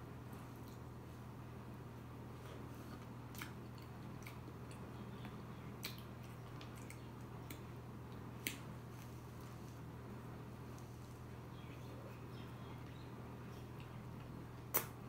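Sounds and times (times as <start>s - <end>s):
steady low hum: 0.0s - 15.0s
wet mouth clicks while chewing: 3.0s - 4.9s, 5.8s - 8.6s, 14.7s - 15.0s.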